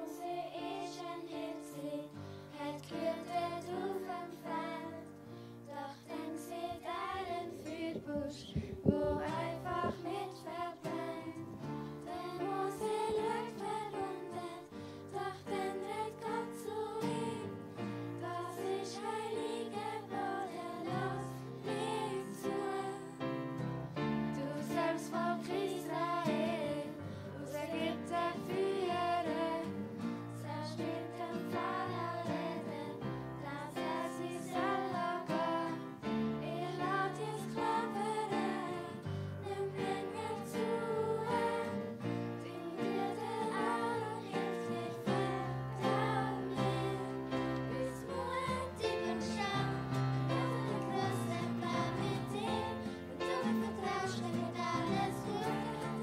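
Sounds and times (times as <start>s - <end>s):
children singing: 0.0s - 23.6s, 24.3s - 56.0s.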